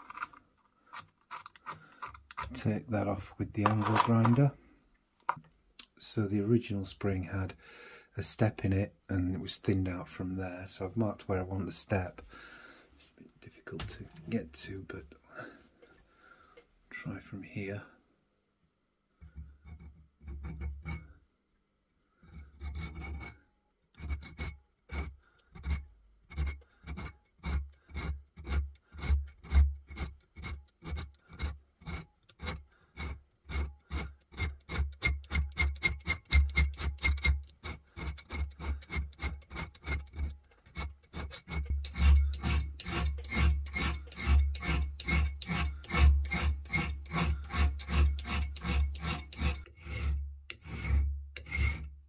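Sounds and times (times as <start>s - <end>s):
hand file rasping on steel: 19.2s - 21.2s, 22.2s - 52.0s.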